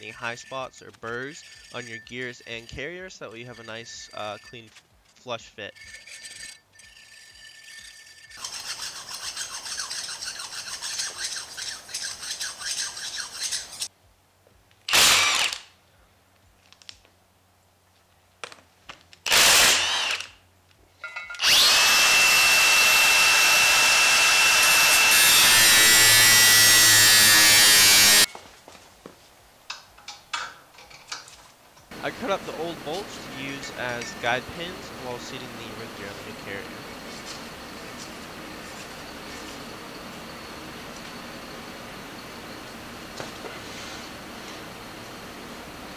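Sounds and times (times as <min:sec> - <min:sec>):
hand file rasping on metal: 0:00.0 - 0:04.5, 0:05.8 - 0:13.9
impact wrench bursts: 0:14.9 - 0:15.7, 0:19.3 - 0:20.4, 0:21.2 - 0:28.3.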